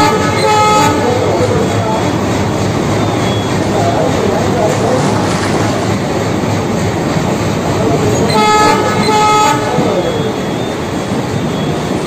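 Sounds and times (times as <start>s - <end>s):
train horn toots: 0.0s - 2.0s, 8.2s - 10.4s
running train: 0.0s - 12.0s.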